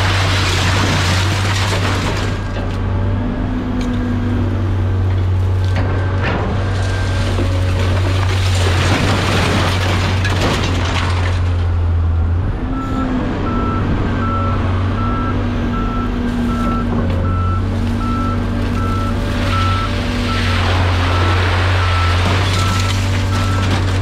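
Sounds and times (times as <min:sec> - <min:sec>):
heavy vehicle engine running: 0:00.0 - 0:24.0
reversing alarm beeping: 0:12.7 - 0:23.8.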